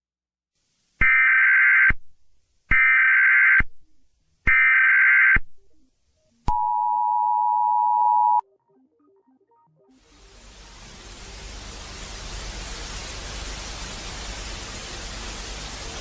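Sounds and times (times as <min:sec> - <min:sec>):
two-tone attention signal: 0:06.5 - 0:08.5.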